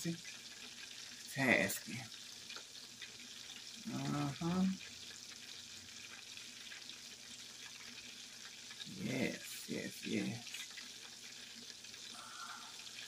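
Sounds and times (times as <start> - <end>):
oil crackling and sizzling: 0.0 - 13.0
person humming: 12.2 - 12.8.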